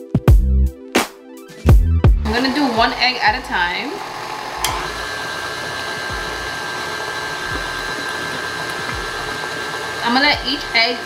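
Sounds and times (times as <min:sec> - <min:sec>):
stand mixer motor whine: 0:02.2 - 0:11.0
mixer click: 0:04.0 - 0:10.0.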